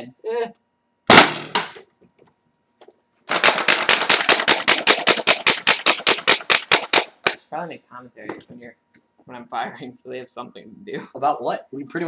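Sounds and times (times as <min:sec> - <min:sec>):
toy launcher air blast: 0:01.1 - 0:01.8, 0:03.3 - 0:07.4
fast sharp clicks: 0:03.3 - 0:07.4.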